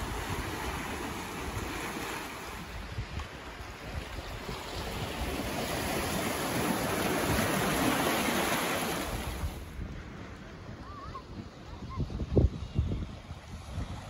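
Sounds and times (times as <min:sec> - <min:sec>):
small waves on rocky shore: 0:00.0 - 0:09.9.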